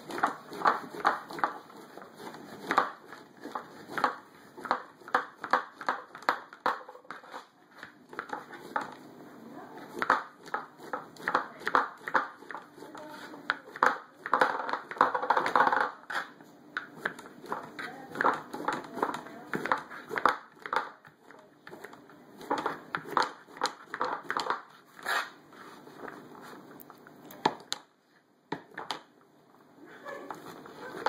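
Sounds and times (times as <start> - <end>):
knife chopping on cutting board: 0.0 - 9.0, 9.8 - 15.6.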